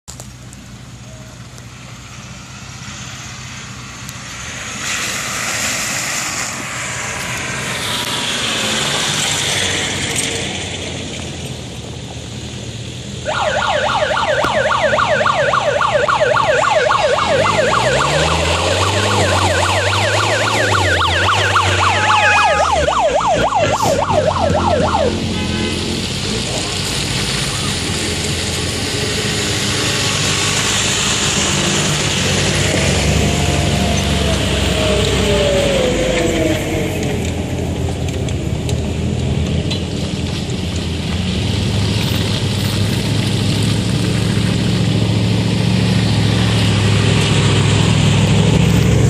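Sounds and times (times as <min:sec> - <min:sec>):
off-road vehicles running: 0:00.0 - 0:49.0
electronic siren yelping: 0:13.2 - 0:25.4
engine revving: 0:13.3 - 0:39.6, 0:41.1 - 0:49.0.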